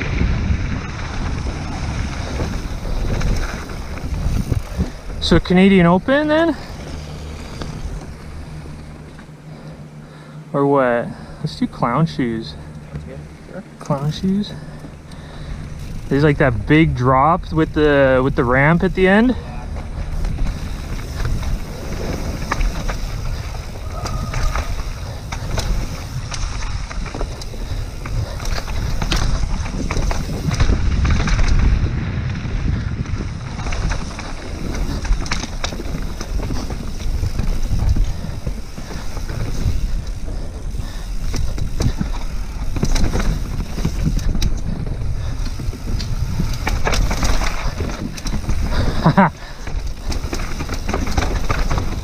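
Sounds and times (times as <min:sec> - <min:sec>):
wind on microphone: 0:00.0 - 0:05.2, 0:19.3 - 0:52.0
bike clattering over rough ground: 0:00.0 - 0:52.0
bike tyres rumbling: 0:00.0 - 0:52.0.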